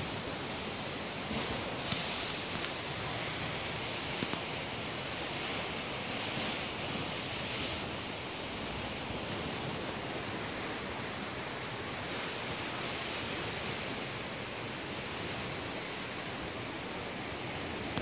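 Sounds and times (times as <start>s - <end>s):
forest ambience hiss: 0.0s - 18.0s.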